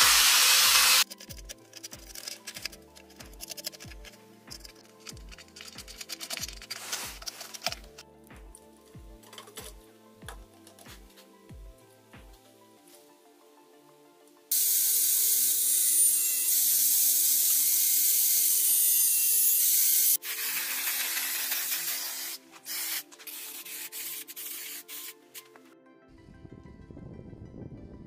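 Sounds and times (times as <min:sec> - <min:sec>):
angle grinder sanding metal rim: 0:00.0 - 0:01.0, 0:14.6 - 0:25.6
spray paint can hissing: 0:00.0 - 0:01.1, 0:05.6 - 0:07.7, 0:14.5 - 0:25.6.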